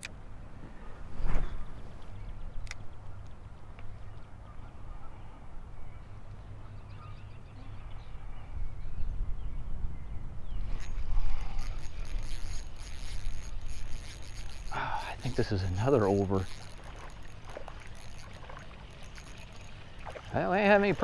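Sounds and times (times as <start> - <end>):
fishing rod and reel handling noise: 0.0 - 4.2, 10.6 - 21.0
wind rumbling on microphone: 7.7 - 21.0.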